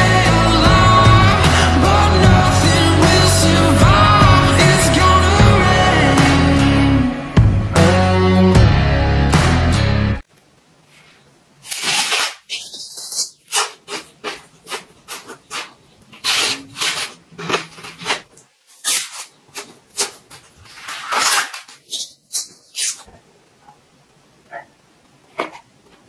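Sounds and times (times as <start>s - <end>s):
leek crunching being chewed: 12.6s - 18.3s.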